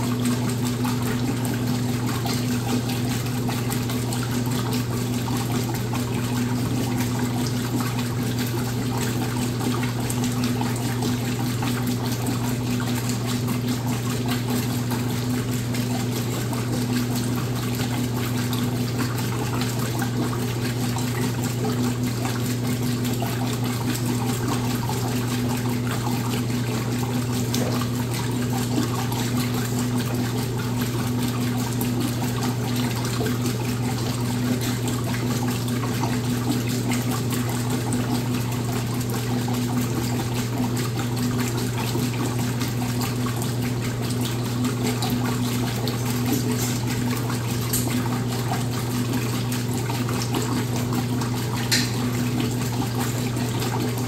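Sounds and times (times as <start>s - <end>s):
washing machine motor hum: 0.0s - 54.0s.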